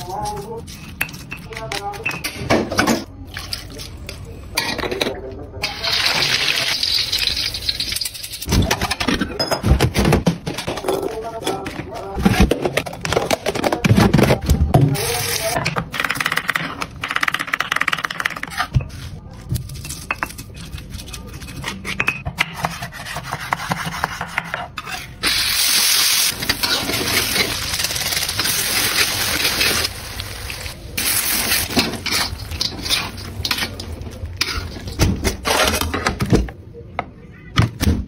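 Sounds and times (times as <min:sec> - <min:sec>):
metal spatula stirring in wok: 0:31.1 - 0:35.0.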